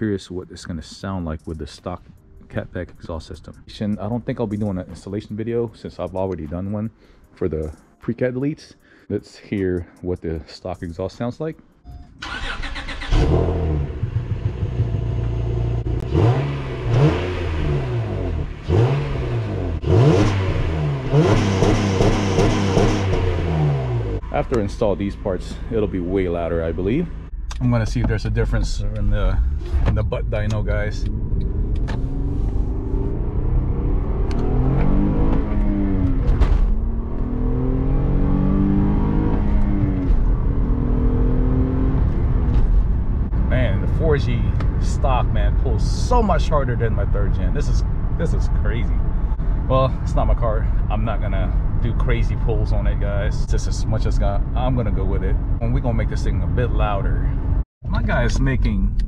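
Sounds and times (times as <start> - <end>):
car engine revving: 12.2 - 58.6.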